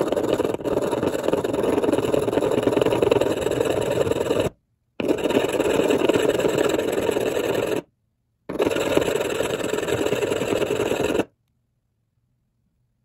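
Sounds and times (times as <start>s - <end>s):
metal scraping on abrasive stone: 0.0s - 7.9s, 8.5s - 11.3s.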